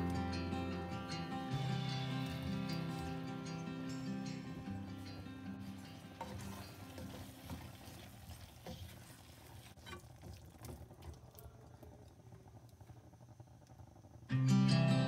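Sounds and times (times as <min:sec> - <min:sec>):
spatula scraping a pan: 0:05.6 - 0:09.2.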